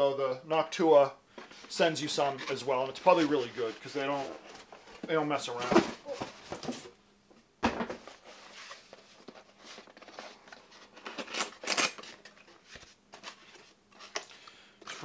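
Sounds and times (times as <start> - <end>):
cardboard scraping and rustling: 1.4 - 7.0, 7.8 - 14.2.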